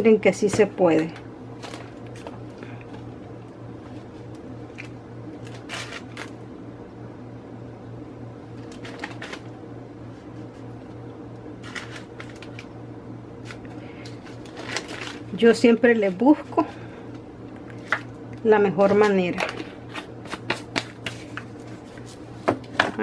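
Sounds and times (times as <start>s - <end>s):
steady low hum: 0.0s - 23.0s
plastic bag crinkling: 1.6s - 2.4s, 4.7s - 6.4s, 8.6s - 9.5s, 11.6s - 12.7s, 13.4s - 16.4s.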